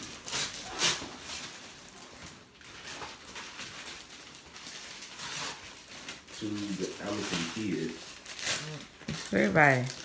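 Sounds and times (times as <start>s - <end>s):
wrapping paper rustling and tearing: 0.0s - 10.0s.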